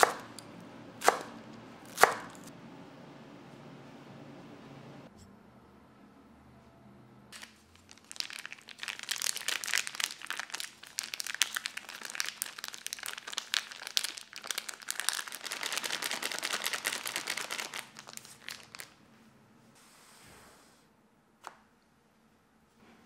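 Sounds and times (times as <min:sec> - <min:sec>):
plastic pouch crinkling: 0:07.4 - 0:19.0.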